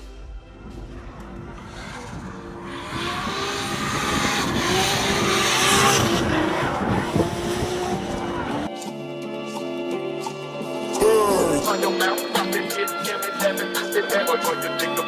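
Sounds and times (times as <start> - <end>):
car engine running hard: 0.6 - 8.7.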